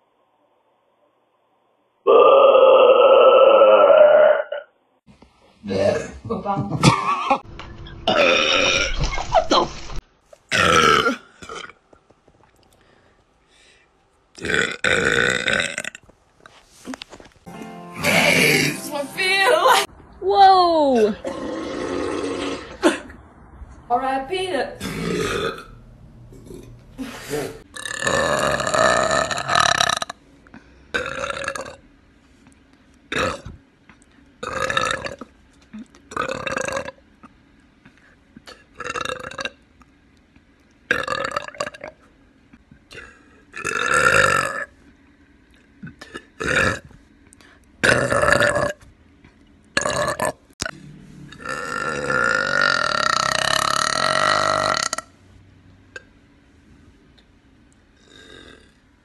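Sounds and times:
woman burping: 8.0 - 9.0, 10.5 - 11.8, 18.0 - 18.8, 21.0 - 23.2, 24.8 - 25.7, 45.8 - 46.9, 51.4 - 55.1.

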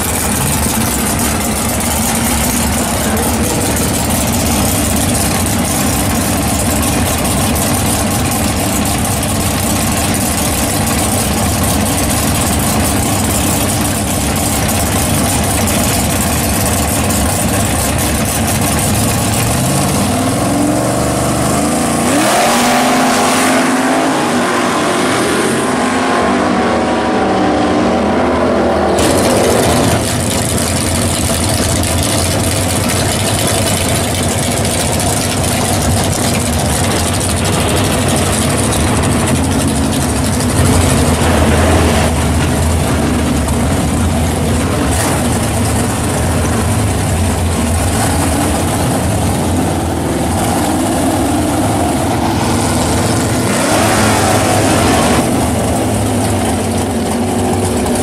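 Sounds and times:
car engines idling and revving: 0.0 - 58.0
racing car engine: 0.0 - 58.0.

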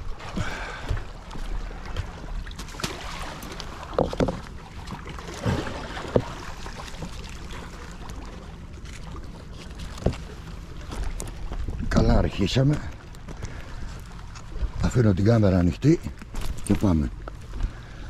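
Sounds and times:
sea water washing among rocks: 0.0 - 8.6
rope knocking and scraping: 3.9 - 4.5.

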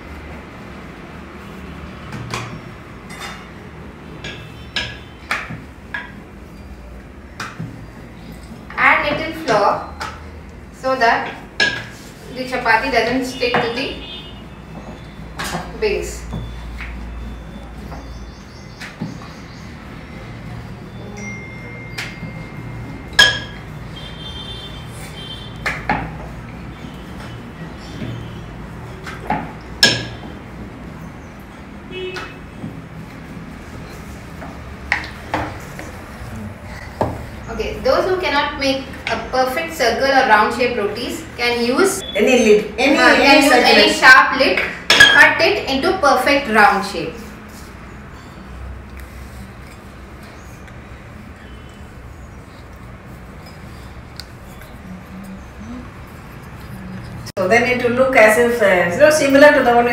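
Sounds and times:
steel utensils clinking: 21.2 - 23.7.

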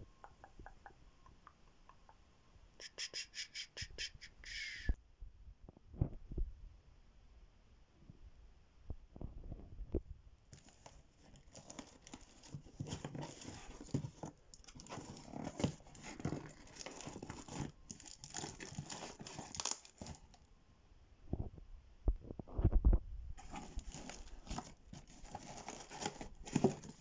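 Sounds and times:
paper and tape ripping: 14.8 - 20.3, 23.4 - 27.0.

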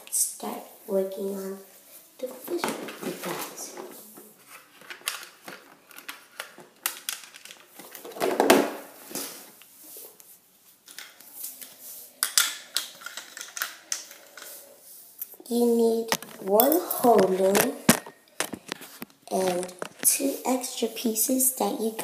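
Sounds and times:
plastic pieces clattering on tile: 4.5 - 8.8, 12.2 - 14.6, 16.1 - 20.0.

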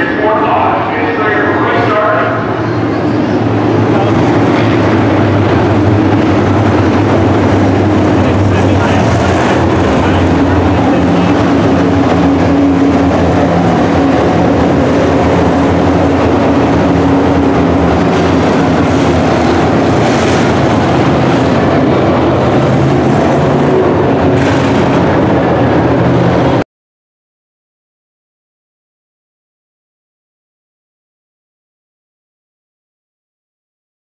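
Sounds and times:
race truck engines droning: 0.0 - 26.6.

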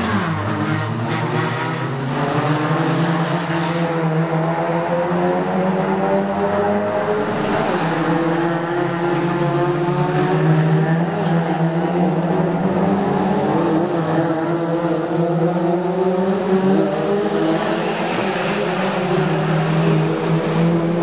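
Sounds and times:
race car engines: 0.0 - 21.0.

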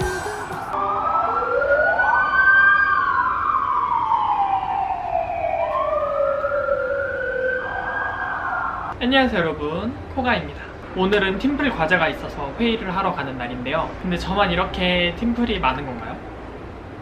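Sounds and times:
emergency siren wailing: 0.0 - 9.0.

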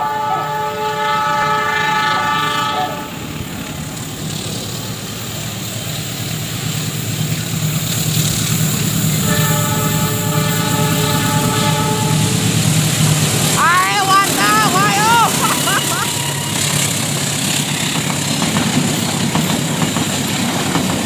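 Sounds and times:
train horn: 0.0 - 3.4, 9.1 - 12.8, 13.6 - 17.0
locomotive engine rumble: 0.0 - 21.0.

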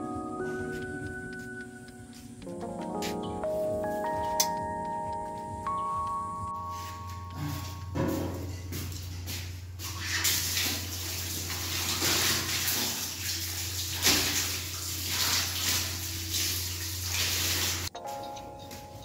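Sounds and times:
water splashing on tiled floor: 9.8 - 17.9.

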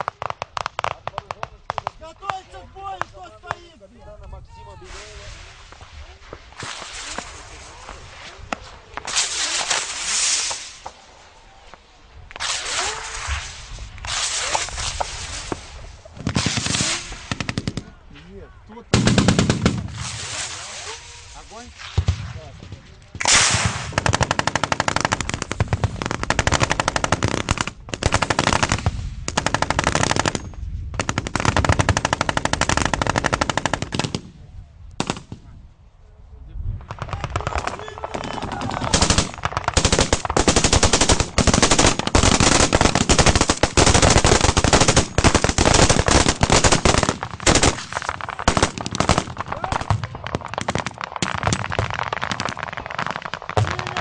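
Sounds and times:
automatic weapons firing bursts: 19.0 - 19.9, 23.3 - 30.4, 31.0 - 34.2, 37.2 - 49.9.

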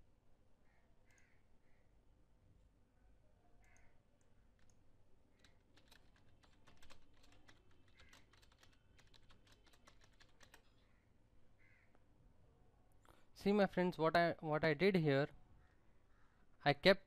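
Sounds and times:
typing on a keyboard: 4.6 - 4.8, 5.4 - 10.8.

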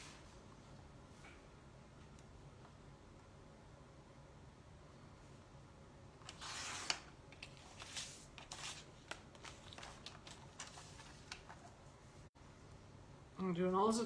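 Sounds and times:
paper rustling: 6.3 - 11.8.

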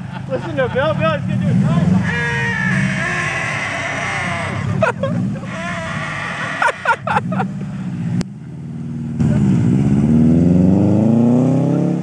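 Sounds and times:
car engine accelerating: 0.8 - 12.0
duck call quacking: 2.0 - 7.2.

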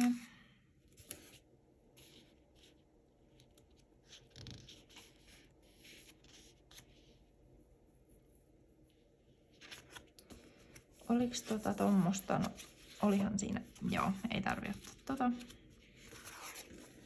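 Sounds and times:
paper stickers rustling: 9.5 - 17.0.

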